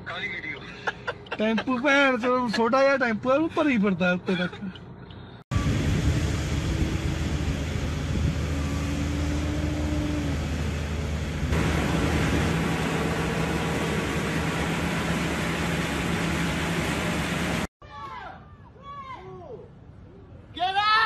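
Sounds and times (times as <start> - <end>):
low engine hum: 4.4 - 17.7.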